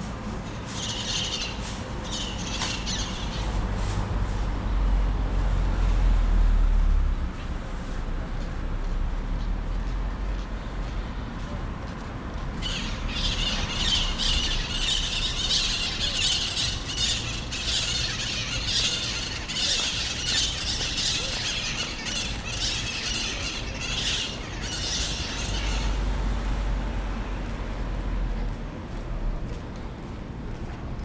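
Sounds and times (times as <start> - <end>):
low outdoor rumble: 0.0 - 31.0
flock of birds squawking: 0.4 - 3.5, 12.6 - 26.1.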